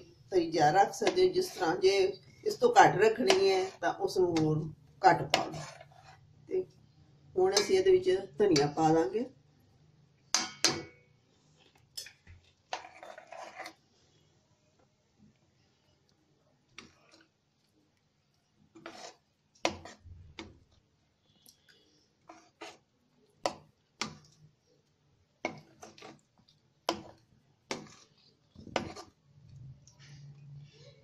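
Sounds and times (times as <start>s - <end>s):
metal ladle knocking on pan: 10.4s - 11.0s.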